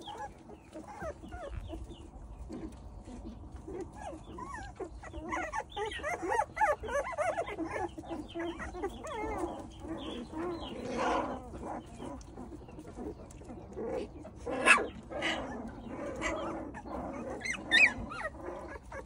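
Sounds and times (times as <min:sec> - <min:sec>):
puppies whining and squeaking: 0:00.0 - 0:19.0.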